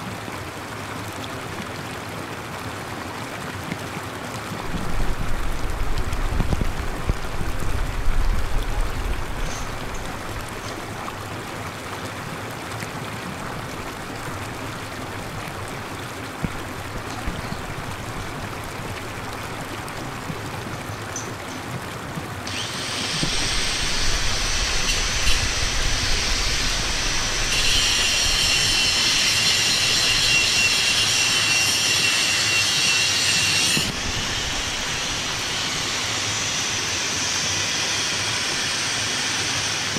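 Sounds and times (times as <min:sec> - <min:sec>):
water spraying and falling: 0:00.0 - 0:39.9
low rumble gusts: 0:04.6 - 0:10.9, 0:23.4 - 0:28.4
shrill steady buzz: 0:22.5 - 0:39.9.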